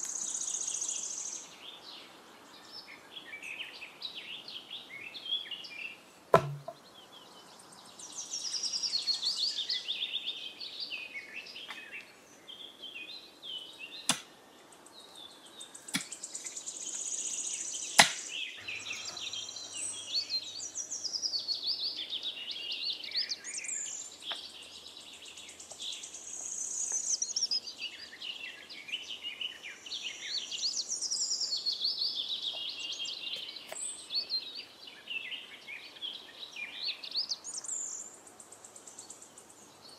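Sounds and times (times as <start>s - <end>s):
songbirds chirping: 0.0s - 39.9s
sharp knocks: 6.3s - 6.8s.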